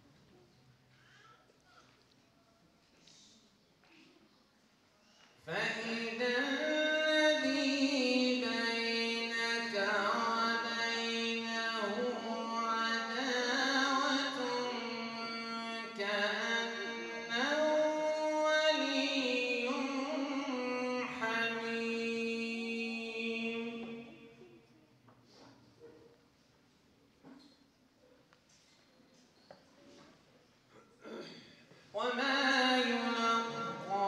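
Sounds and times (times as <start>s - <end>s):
man chanting recitation: 5.4s - 24.6s, 31.8s - 34.0s.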